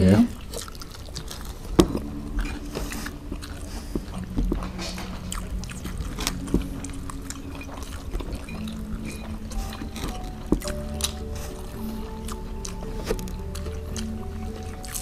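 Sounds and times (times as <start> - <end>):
chewing and biting: 0.0 - 15.0
faint low hum: 0.0 - 15.0.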